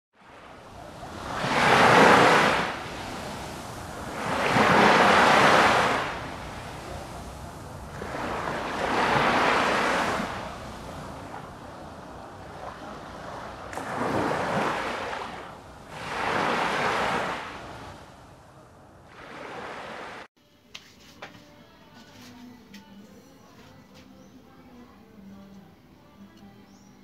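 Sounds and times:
waves breaking on shore: 0.2s - 20.3s.

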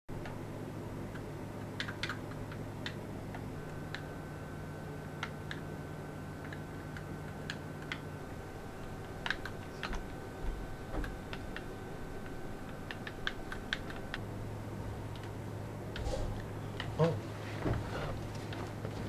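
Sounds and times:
faint steady hum: 0.1s - 19.0s.

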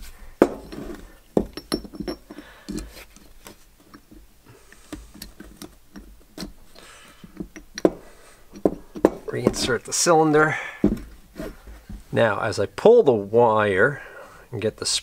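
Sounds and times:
hands clicking and scratching metal: 0.5s - 10.0s.

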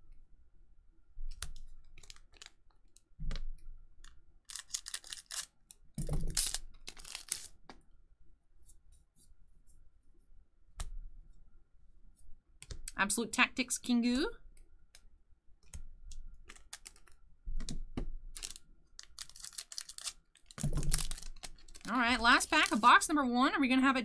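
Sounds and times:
wrapper crinkling and tearing: 1.9s - 3.0s, 4.4s - 5.6s, 6.2s - 7.6s, 16.4s - 17.2s, 18.3s - 23.1s.

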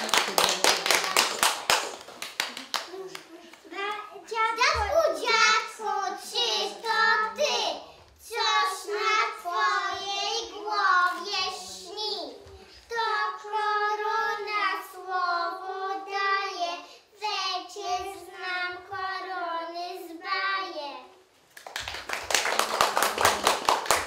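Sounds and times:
applause: 0.0s - 3.6s, 21.5s - 24.0s
children singing: 4.7s - 20.6s.

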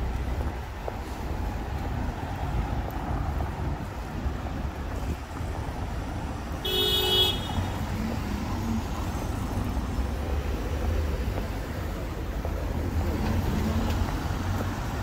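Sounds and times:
traffic rumble: 0.0s - 15.0s
car horn toot: 6.6s - 7.8s.

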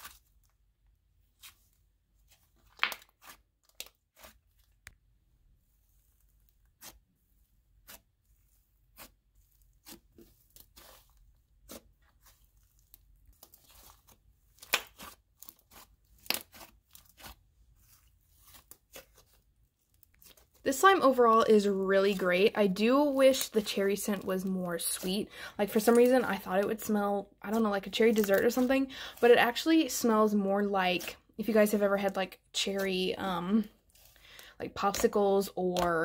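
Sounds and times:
hands stretching slime: 0.0s - 36.0s
slime popping and crackling: 9.7s - 17.4s, 20.1s - 30.0s.

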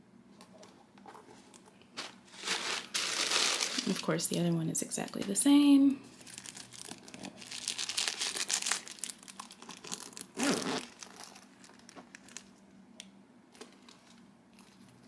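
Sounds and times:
tissue paper crinkling: 2.0s - 4.3s, 6.1s - 12.5s.

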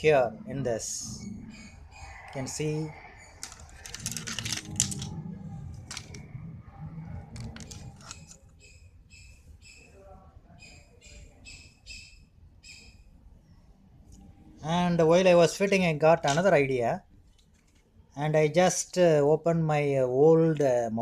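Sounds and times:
small bird chirping faintly: 0.1s - 4.1s, 6.5s - 14.8s.

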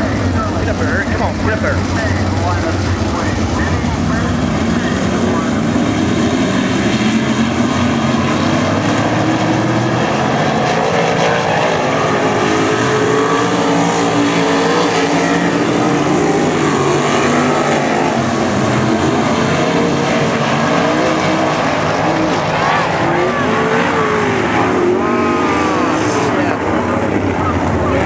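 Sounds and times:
racing car engines: 0.0s - 28.0s.

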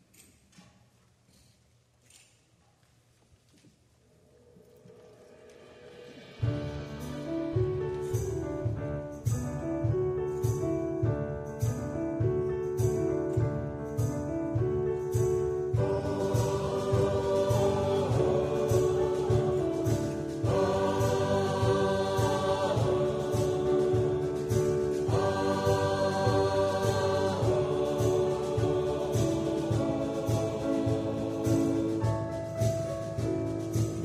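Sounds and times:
instrumental accompaniment: 5.2s - 34.0s
mixed choir singing: 15.6s - 34.0s.

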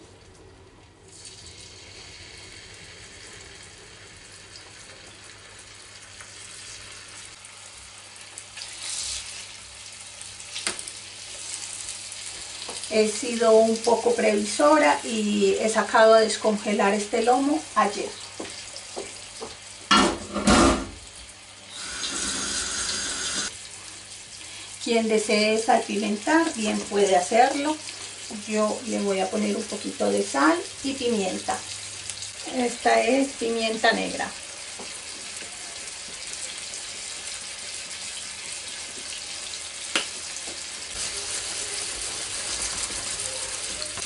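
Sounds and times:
meat sizzling in frying pan: 1.2s - 44.0s
kitchen tap running: 17.8s - 32.3s.

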